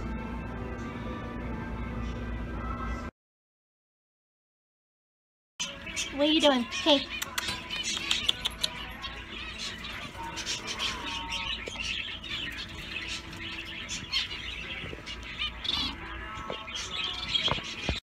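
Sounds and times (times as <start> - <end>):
parrot chirping and chattering: 5.6 - 18.0.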